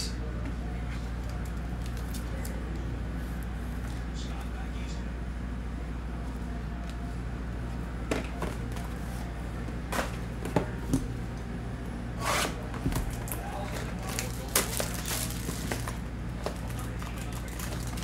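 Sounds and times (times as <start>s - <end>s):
steady low hum: 0.0s - 18.0s
plastic crinkling: 13.3s - 18.0s
plastic wrap tearing: 13.3s - 18.0s.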